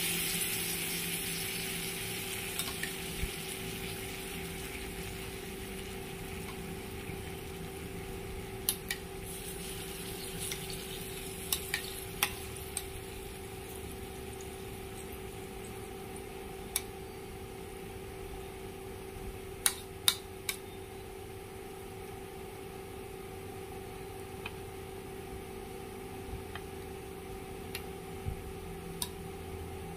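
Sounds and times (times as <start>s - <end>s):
clams sizzling on grill pan: 0.0s - 16.4s
steady hum: 0.0s - 29.9s
spoon clicking against pan: 11.4s - 13.0s.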